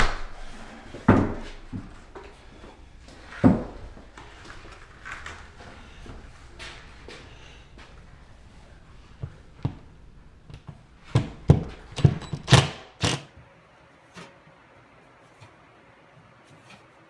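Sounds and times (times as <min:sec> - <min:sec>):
drill driving screws into ceiling: 0:12.0 - 0:13.3.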